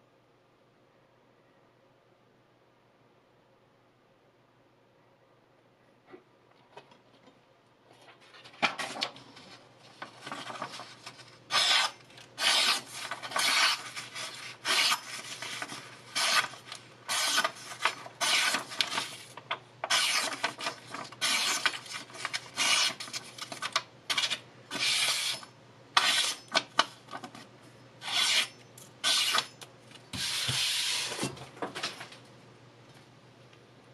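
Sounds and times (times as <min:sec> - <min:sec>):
paper rustling: 0:07.9 - 0:24.3
knife slicing paper: 0:11.5 - 0:23.2, 0:28.0 - 0:29.5.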